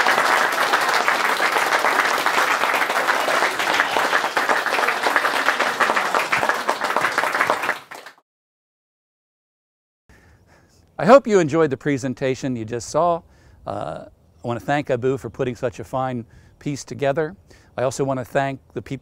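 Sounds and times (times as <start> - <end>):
audience applauding: 0.0 - 8.2.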